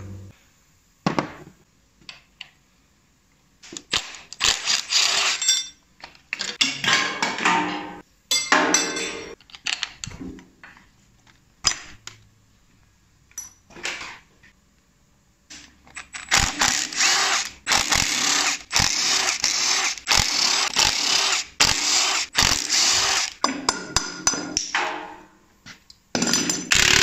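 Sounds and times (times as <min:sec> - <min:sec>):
impact wrench whine and rattle: 0:03.8 - 0:05.6, 0:15.9 - 0:23.4, 0:26.2 - 0:27.0.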